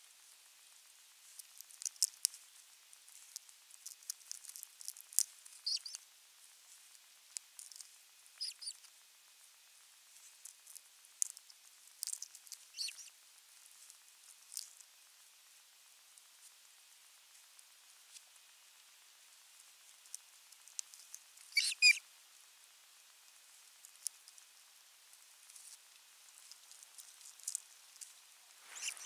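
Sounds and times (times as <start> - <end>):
osprey squeaks: 21.5 - 22.0, 28.7 - 29.0.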